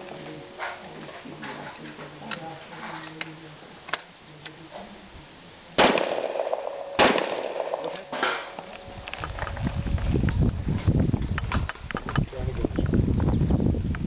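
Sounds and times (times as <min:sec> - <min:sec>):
rifle shots: 0:05.8 - 0:08.6
steel targets ringing: 0:06.0 - 0:08.8
wind rumble on microphone: 0:08.8 - 0:14.0.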